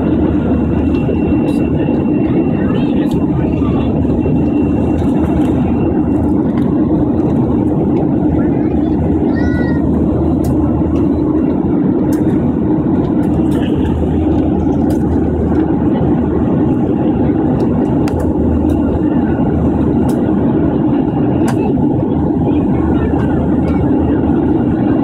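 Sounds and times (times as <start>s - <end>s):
airliner cabin drone: 0.0s - 25.0s.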